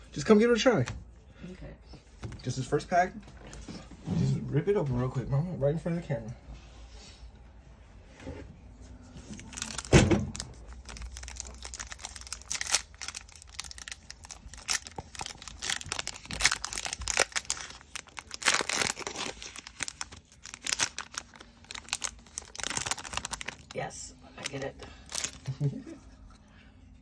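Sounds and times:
foil card pack ripping and crinkling: 9.4 - 23.8, 24.4 - 25.6.

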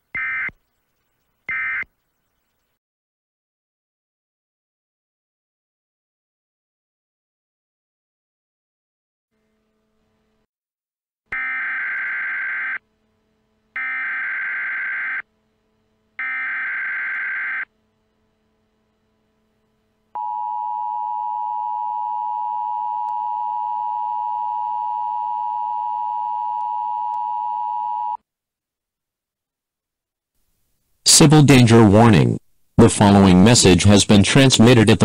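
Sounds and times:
data bursts: 0.1 - 2.6, 13.8 - 15.3.

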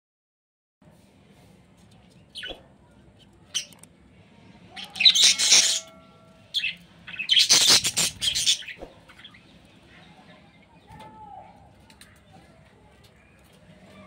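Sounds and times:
budgerigar rasping squawks: 4.8 - 8.8.

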